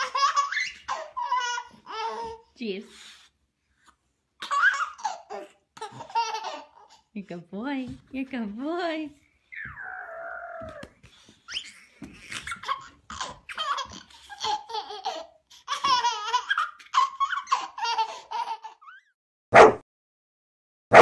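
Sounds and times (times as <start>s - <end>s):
baby giggling and laughing: 0.0s - 2.4s, 4.4s - 7.1s, 9.6s - 19.1s.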